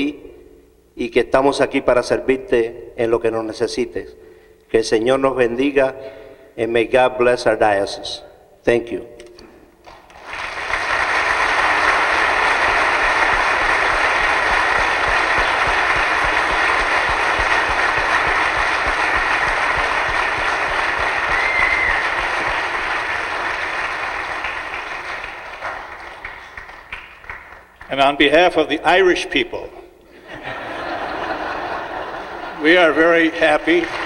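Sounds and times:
crowd clapping: 9.8 - 28.2, 31.0 - 34.0.

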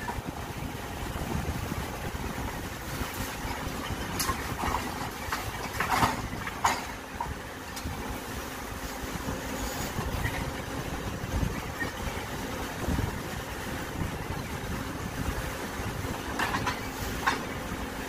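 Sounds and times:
diesel engine running: 0.0 - 18.0
rubble clattering into truck bed: 3.9 - 7.4, 16.3 - 17.5.

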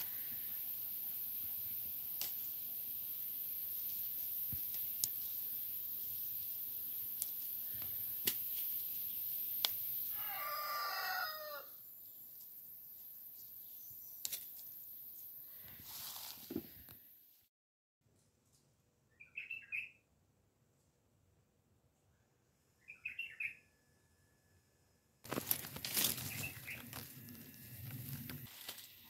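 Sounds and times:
steady high hiss: 0.0 - 10.5
rooster crowing: 10.1 - 11.8.

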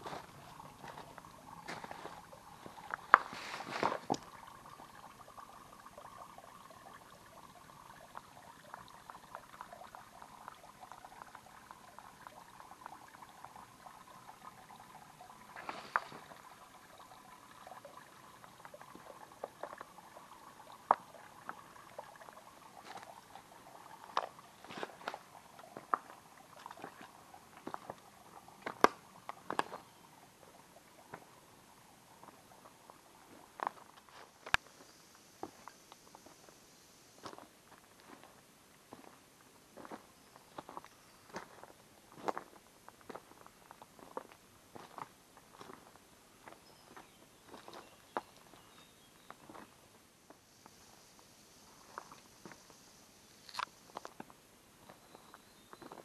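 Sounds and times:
mountain stream trickling: 0.0 - 56.0.

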